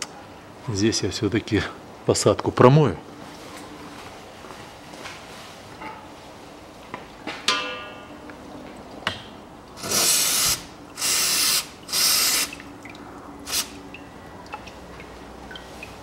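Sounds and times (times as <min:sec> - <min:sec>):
aerosol can spraying: 0:09.8 - 0:12.6.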